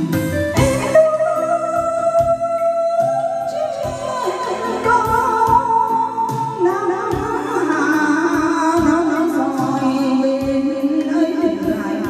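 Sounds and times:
karaoke backing track with beat: 0.0 - 12.0
person singing with vibrato: 0.0 - 12.0.

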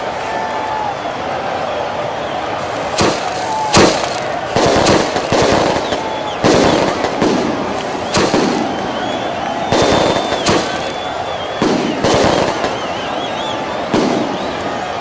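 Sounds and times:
crowd voices: 0.0 - 15.0
fireworks banging: 2.6 - 14.6.

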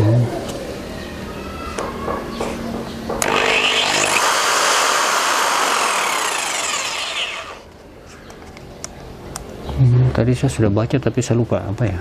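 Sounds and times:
jigsaw whining: 3.2 - 7.7.

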